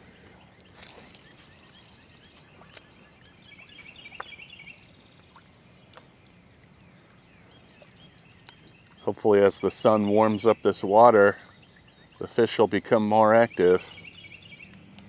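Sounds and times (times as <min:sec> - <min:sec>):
bird twittering: 0:00.4 - 0:05.2, 0:07.2 - 0:14.8
fishing line paying out: 0:00.6 - 0:03.3.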